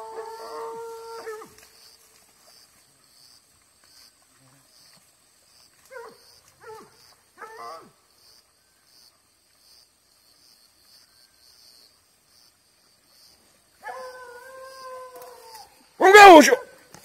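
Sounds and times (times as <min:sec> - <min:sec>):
distant hounds barking and baying: 0:05.8 - 0:08.0, 0:13.8 - 0:16.9.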